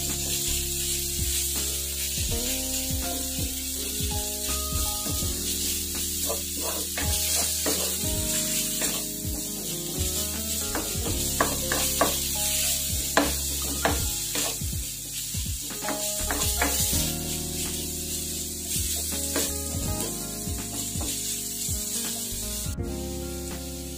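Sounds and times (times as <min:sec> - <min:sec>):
meat sizzling in a wok: 0:00.0 - 0:23.9
wooden spatula scraping: 0:04.4 - 0:21.5
spatula tapping on pan: 0:10.6 - 0:12.3, 0:13.1 - 0:14.6, 0:15.9 - 0:16.8, 0:19.3 - 0:19.5.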